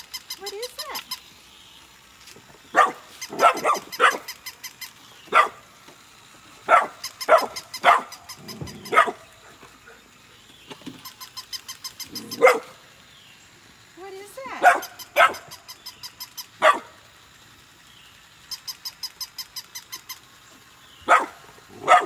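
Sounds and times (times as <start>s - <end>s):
rapid mechanical clicking: 0.0s - 2.5s, 3.1s - 9.0s, 10.5s - 22.0s
puppies yapping: 2.7s - 5.7s, 6.6s - 10.3s, 10.9s - 12.9s, 14.5s - 17.0s, 21.0s - 22.0s.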